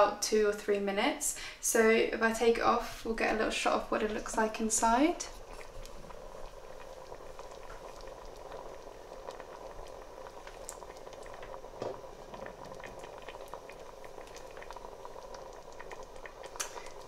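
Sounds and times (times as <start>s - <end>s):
pot bubbling with small pops: 3.1s - 17.0s
soft thump: 11.8s - 12.0s.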